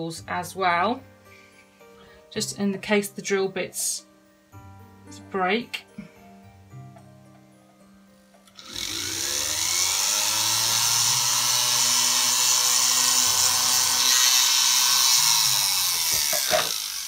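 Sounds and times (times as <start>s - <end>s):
pendant drill whirring: 8.5s - 17.0s.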